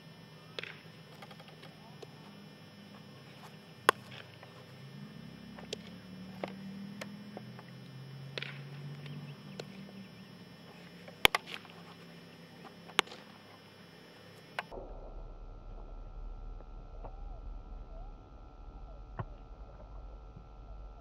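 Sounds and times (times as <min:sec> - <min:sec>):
baseballs popping into gloves: 0:00.5 - 0:02.3, 0:03.3 - 0:10.0, 0:10.6 - 0:13.7.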